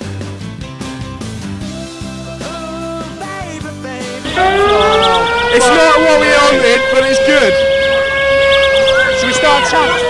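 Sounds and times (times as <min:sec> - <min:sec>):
pop music with guitar: 0:00.0 - 0:05.6
slowly rising wail: 0:04.3 - 0:10.0
wavering tones: 0:04.3 - 0:10.0.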